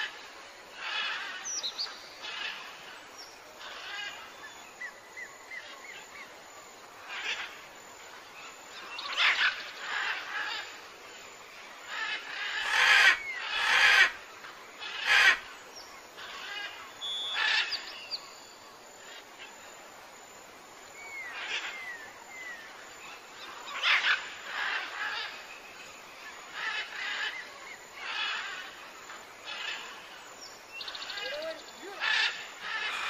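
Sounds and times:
whistled bird chirps: 0:17.0 - 0:18.5
harsh bird calls: 0:30.8 - 0:33.0.

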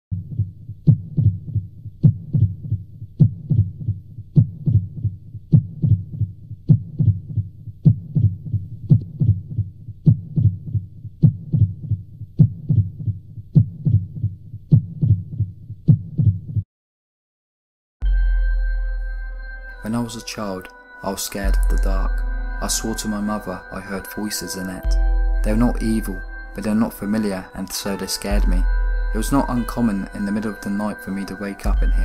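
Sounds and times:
slow heartbeat: 0:00.1 - 0:16.6, 0:21.4 - 0:24.2, 0:24.8 - 0:27.2, 0:28.3 - 0:30.5, 0:31.6 - 0:32.0.

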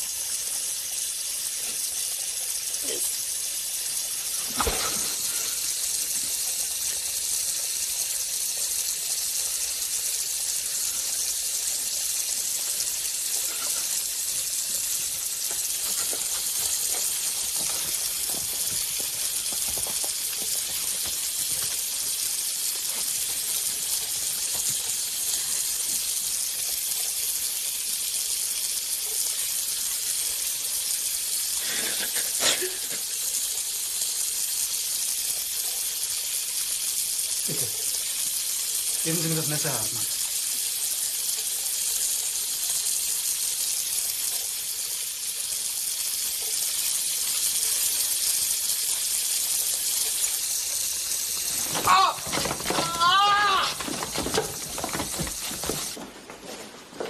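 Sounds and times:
steady high hiss: 0:01.0 - 0:27.4, 0:45.3 - 0:56.0.

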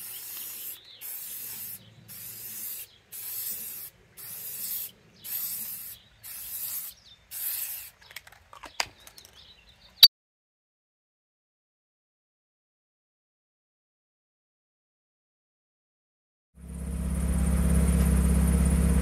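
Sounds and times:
spray-paint can hissing: 0:00.0 - 0:08.4.

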